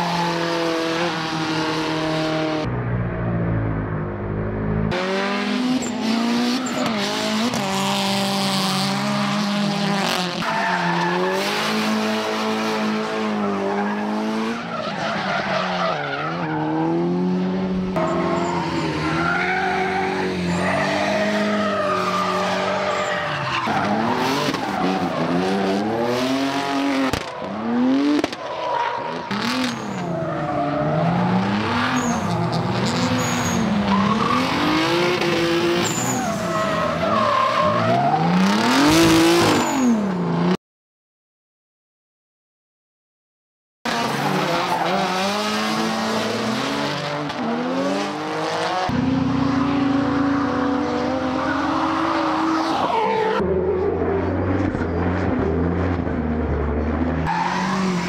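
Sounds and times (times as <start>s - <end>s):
car engines revving hard: 4.8s - 40.6s, 43.9s - 58.0s
tyre squeal and skidding: 5.8s - 7.7s, 10.3s - 11.8s, 13.2s - 17.0s, 18.0s - 40.1s, 49.4s - 55.0s, 57.2s - 58.0s.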